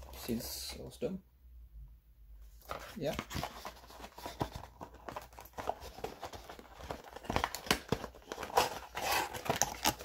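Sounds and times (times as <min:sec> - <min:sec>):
cardboard box scraping and rustling: 0:08.3 - 0:09.6.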